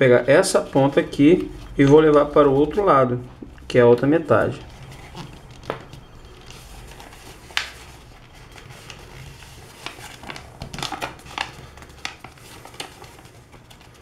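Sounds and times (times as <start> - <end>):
paper crackling: 4.3 - 14.0
paper rustling and crinkling: 4.3 - 14.0.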